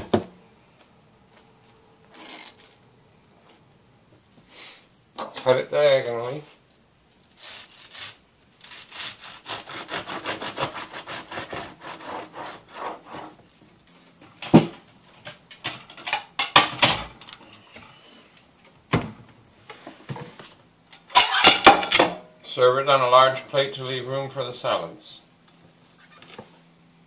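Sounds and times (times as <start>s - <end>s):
knife sawing through toasted bread: 7.4s - 13.4s.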